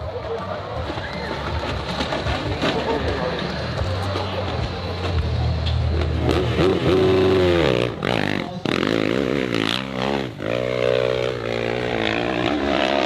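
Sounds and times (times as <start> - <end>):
motorcycle engine revving: 2.6 - 13.0.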